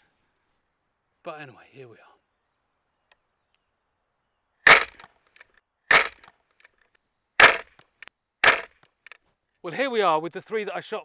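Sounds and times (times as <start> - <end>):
crossbow string cracking: 4.7 - 9.2.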